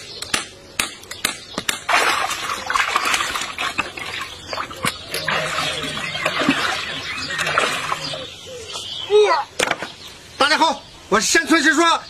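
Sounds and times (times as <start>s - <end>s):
water splashing in steel basin: 1.8s - 8.2s.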